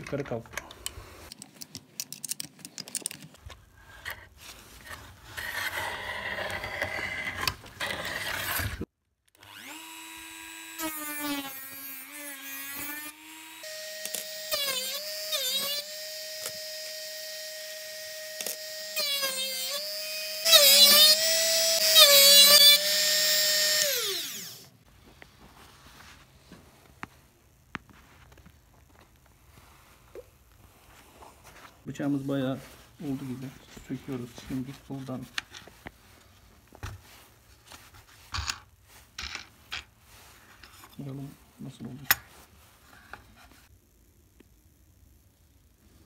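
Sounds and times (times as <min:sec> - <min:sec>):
clicks and rubbing of handling: 0:00.0 - 0:05.2
rotary tool whine: 0:09.4 - 0:24.7.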